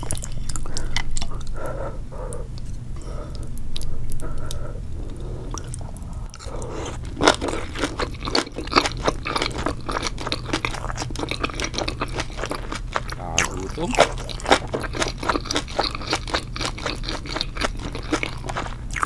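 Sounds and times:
wet crunchy chewing: 0.0 - 1.7, 5.5 - 19.0
steady low hum: 0.0 - 19.0.

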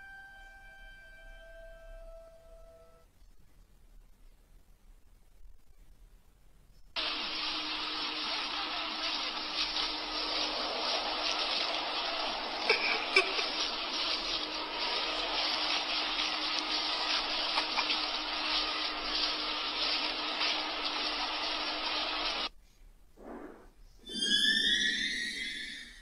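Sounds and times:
low steady hum: 0.0 - 24.0
harsh static rushing noise: 7.0 - 22.5.

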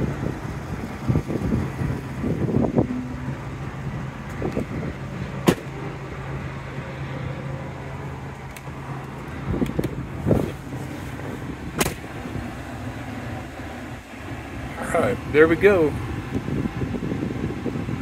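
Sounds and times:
truck engine idling: 0.0 - 18.0.

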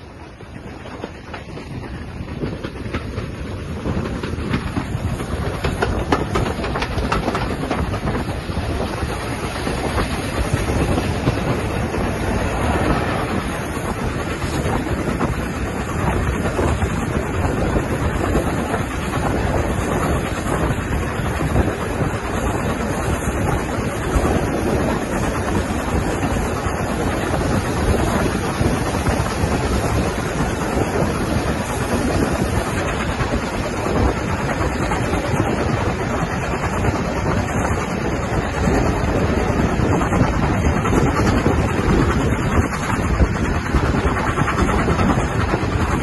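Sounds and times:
train running on rails: 0.0 - 46.0
wheels clattering over rail joints: 0.4 - 46.0.

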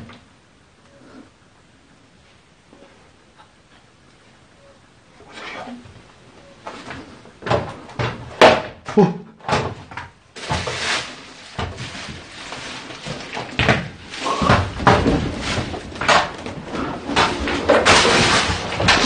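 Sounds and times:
steady rustling hiss: 0.0 - 8.9, 9.5 - 19.0
door or cupboard banging: 7.4 - 10.9, 13.0 - 19.0.

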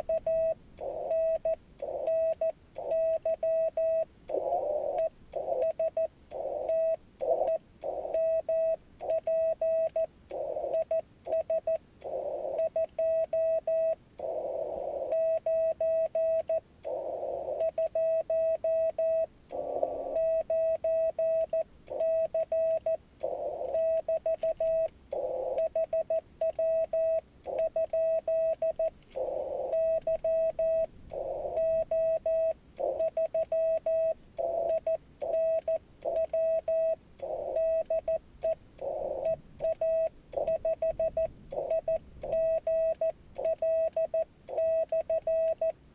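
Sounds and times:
morse code tone: 0.0 - 45.8
radio band noise: 4.3 - 5.7.

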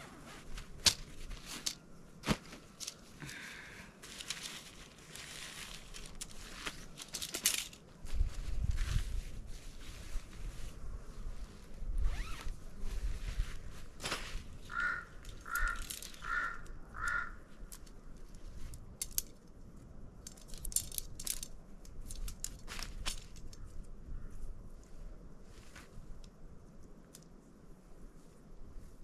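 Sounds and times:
camping gear handled: 0.0 - 3.4, 4.0 - 10.8, 12.0 - 16.4, 20.2 - 23.6.

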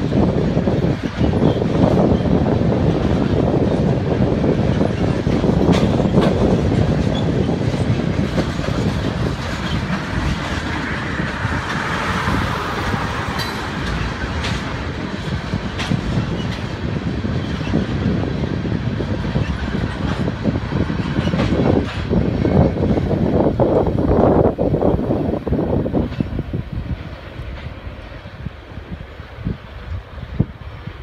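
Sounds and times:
train wheels rumbling on rails: 0.0 - 31.0
wheels clacking over rail joints: 0.0 - 31.0.

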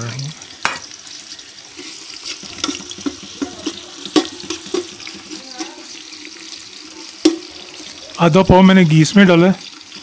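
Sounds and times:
onions sizzling in frying pot: 0.0 - 10.0
metal spatula clinking against pot: 1.8 - 5.9.

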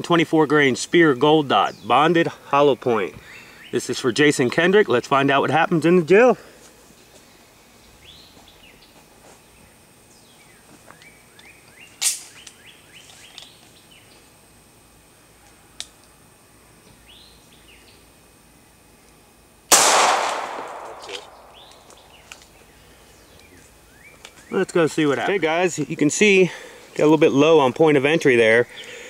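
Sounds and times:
birds chirping: 0.5 - 4.6, 20.4 - 29.0
pistol shot with ringing tail: 19.7 - 22.2
short sharp crack: 19.7 - 22.4.

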